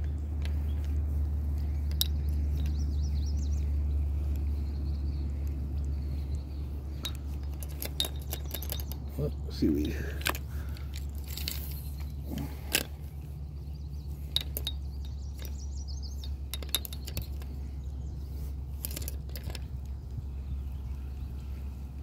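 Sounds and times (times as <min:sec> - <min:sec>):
steady low rumble: 0:00.0 - 0:22.0
fishing gear clinking: 0:05.4 - 0:20.0.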